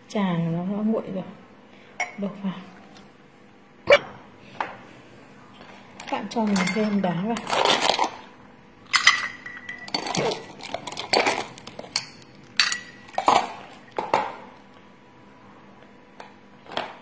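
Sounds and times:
metal spoon clinking glass: 8.9 - 10.3, 12.0 - 13.2.

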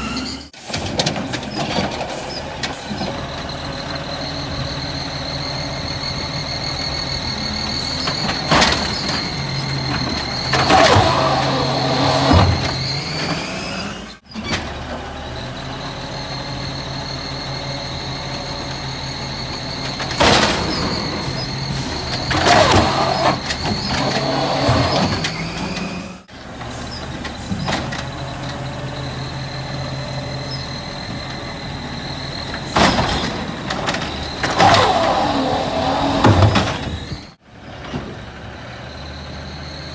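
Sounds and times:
hydraulic whine: 0.0 - 39.9
trash carts clanking and banging: 0.0 - 39.9
truck engine running: 0.6 - 25.0.

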